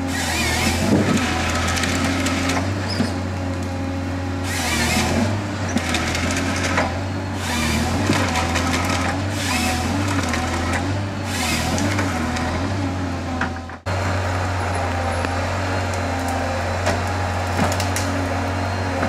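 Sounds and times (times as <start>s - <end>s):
diesel engine hum: 0.0s - 19.0s
hydraulic whine: 0.0s - 19.0s
harvester head splintering wood: 15.2s - 18.4s.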